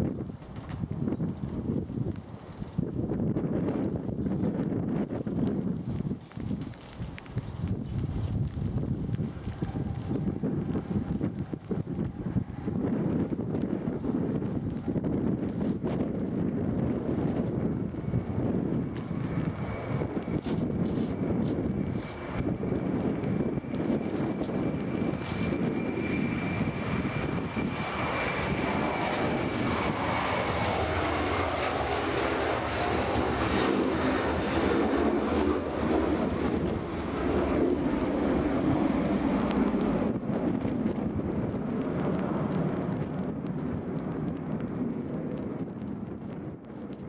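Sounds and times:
jet engines at takeoff: 0.0 - 47.0
high engine whine: 16.7 - 42.8.

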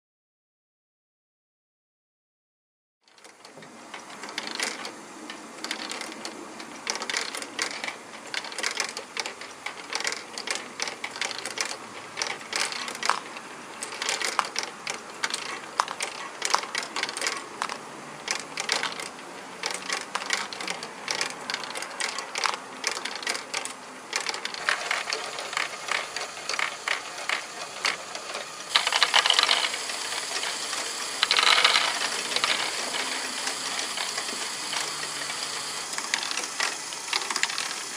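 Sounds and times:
gears clattering: 3.1 - 37.9
plastic balls rolling and rattling: 3.1 - 37.9.

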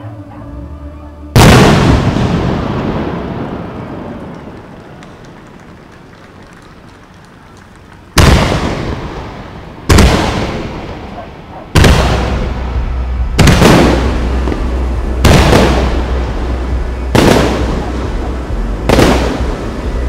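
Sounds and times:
firework shells booming: 8.1 - 20.0.

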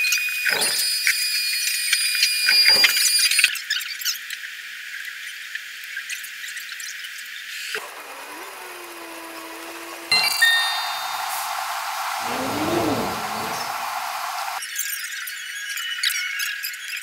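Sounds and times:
spray can hissing: 10.5 - 12.3.

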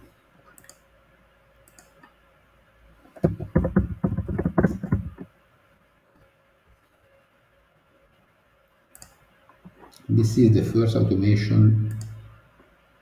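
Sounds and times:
typing on computer keyboard: 3.2 - 5.3.

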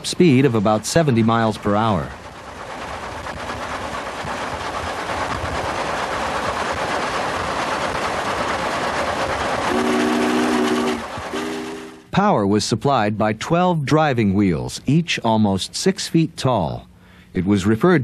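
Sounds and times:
steam locomotive running at speed: 0.0 - 12.1
steam whistle chord: 9.7 - 12.1.

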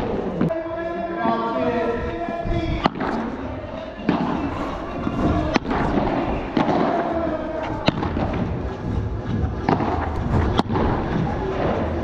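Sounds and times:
ball bouncing off court: 5.1 - 7.1
padel ball hit by rackets: 5.5 - 7.1.

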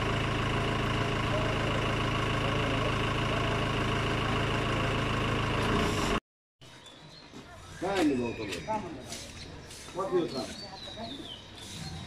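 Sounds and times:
pickup truck engine idling: 0.0 - 6.2.

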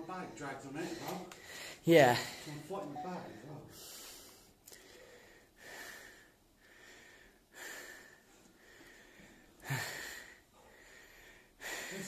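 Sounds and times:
man breathing hard: 0.8 - 1.8, 3.7 - 12.0.

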